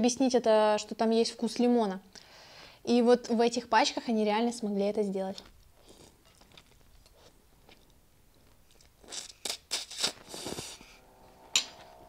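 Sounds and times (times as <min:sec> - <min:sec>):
faint chewing: 0:05.4 - 0:11.0
wet slurps of noodles: 0:09.1 - 0:11.0.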